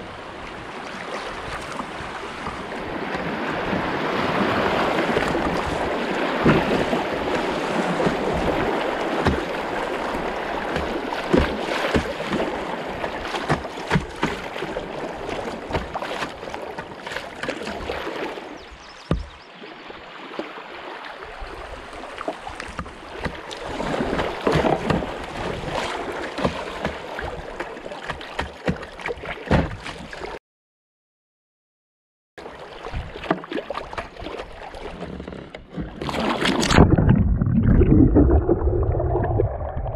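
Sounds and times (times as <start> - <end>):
river water rushing and splashing: 0.0 - 30.4
knocks on kayak hull: 6.4 - 7.4, 9.1 - 9.6, 10.7 - 12.5, 19.0 - 19.4, 22.6 - 25.2, 26.4 - 30.0.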